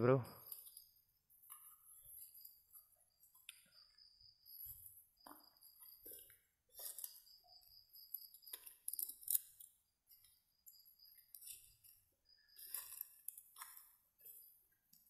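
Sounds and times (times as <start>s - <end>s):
night insects trilling: 1.6s - 13.3s.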